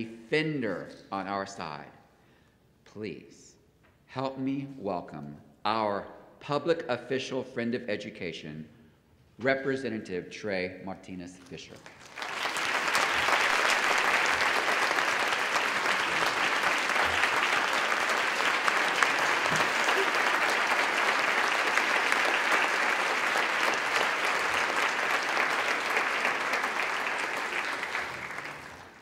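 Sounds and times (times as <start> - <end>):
large audience applauding: 11.8 - 29.0.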